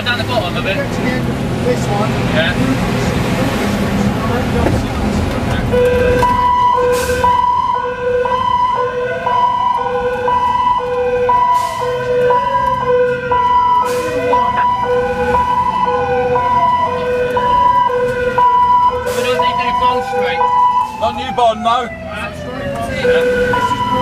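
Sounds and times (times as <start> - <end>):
fire engine running: 0.0 - 24.0
two-tone siren: 5.7 - 24.0
wailing siren: 5.7 - 24.0.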